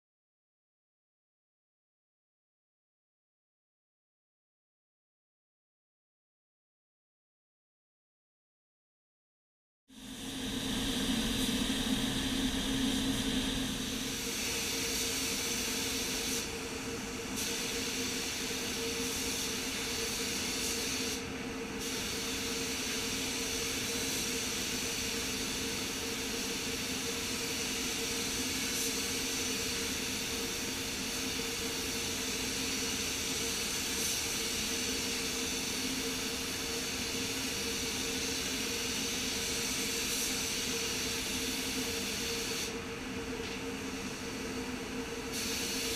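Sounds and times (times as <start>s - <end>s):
low hum: 10.0s - 14.3s
paint spray gun hissing: 10.0s - 16.5s, 17.4s - 21.2s, 21.8s - 42.8s, 45.3s - 45.9s.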